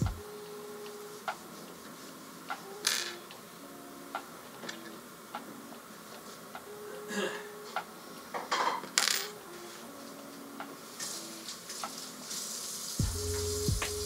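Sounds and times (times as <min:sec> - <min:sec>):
soft background music: 0:00.0 - 0:14.0
small objects clicking on a table: 0:08.6 - 0:09.4.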